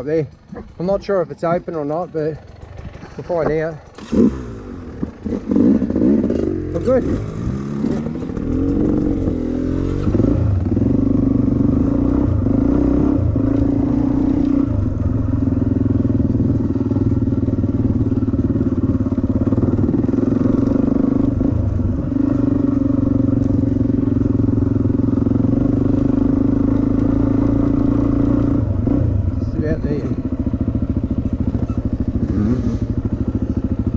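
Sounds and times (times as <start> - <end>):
dirt bike engine revving: 0.0 - 33.9.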